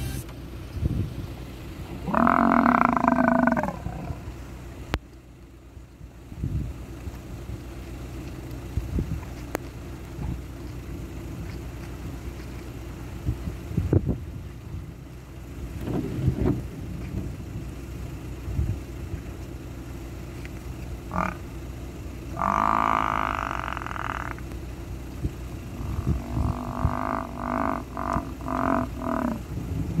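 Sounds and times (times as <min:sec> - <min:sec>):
steady low rumble: 0:00.0 - 0:30.0
large animal moaning call: 0:02.0 - 0:04.3, 0:21.1 - 0:21.4, 0:22.3 - 0:24.4, 0:25.7 - 0:29.5.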